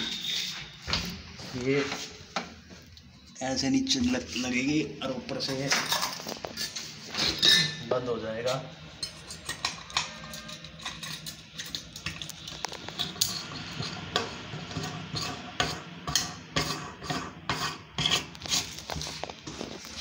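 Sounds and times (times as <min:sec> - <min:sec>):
metal sink strainer scraping: 0:05.9 - 0:07.8, 0:09.0 - 0:12.3.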